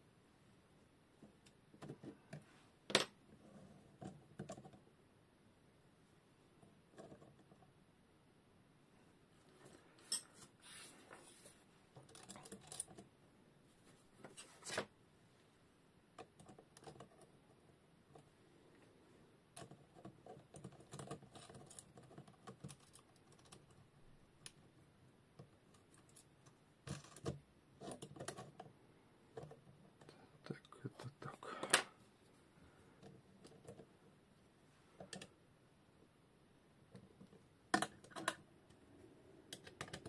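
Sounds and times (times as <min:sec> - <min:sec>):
metal parts clicking and clinking: 0:12.0 - 0:13.0.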